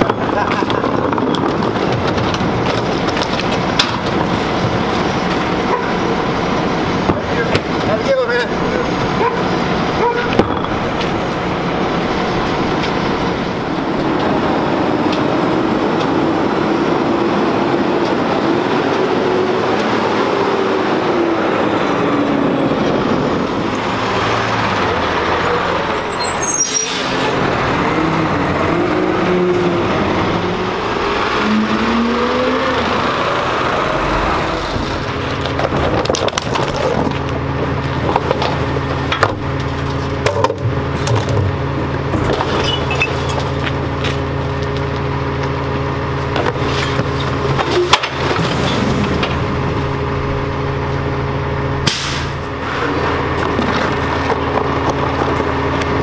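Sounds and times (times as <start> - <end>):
garbage truck driving by: 0.0 - 56.0
garbage truck idling: 27.3 - 56.0.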